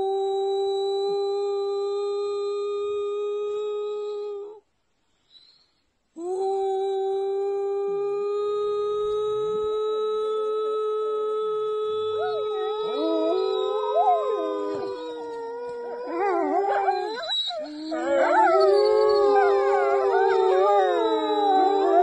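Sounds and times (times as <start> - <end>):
person howling through cupped hands: 6.2 - 22.0
wolves howling: 12.0 - 22.0.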